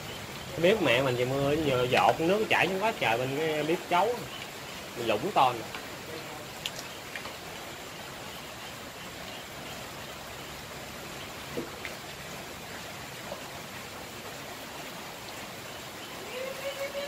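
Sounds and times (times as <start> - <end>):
frying in hot oil: 0.0 - 12.2.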